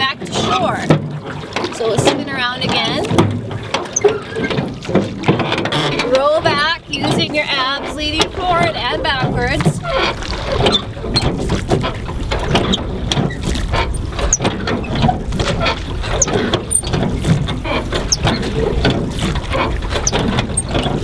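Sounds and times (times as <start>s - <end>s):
oarlocks squeaking and knocking: 2.6s - 7.5s, 9.2s - 21.0s.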